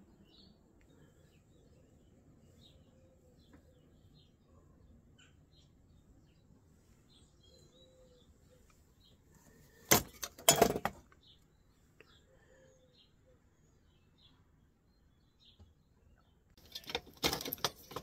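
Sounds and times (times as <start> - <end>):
faint bird chirps: 0.0 - 9.9, 11.2 - 16.5
hard metal parts clattering: 9.9 - 11.0, 16.6 - 18.0.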